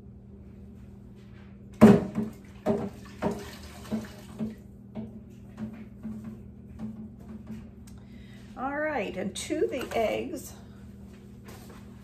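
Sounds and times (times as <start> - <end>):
tap water running and splashing: 1.8 - 6.2.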